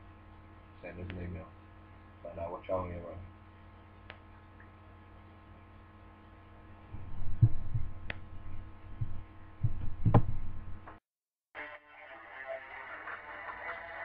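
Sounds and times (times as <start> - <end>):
low electrical hum: 0.0 - 11.0
dull low thumps: 6.9 - 11.0.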